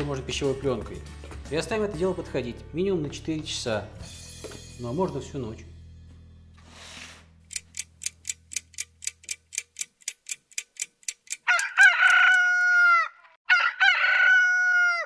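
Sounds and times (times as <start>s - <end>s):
clock ticking: 7.5s - 12.4s
rooster crowing: 11.5s - 15.0s.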